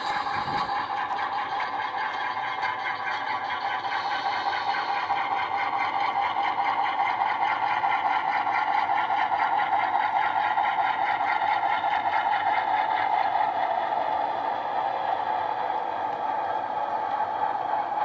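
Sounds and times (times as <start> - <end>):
model locomotive diesel engine sound: 0.0 - 18.0.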